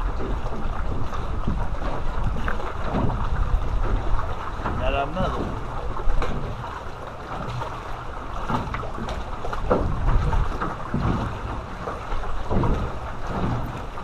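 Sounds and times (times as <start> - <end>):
waves lapping against boat hull: 0.0 - 14.0
wind buffeting microphone: 0.0 - 14.0.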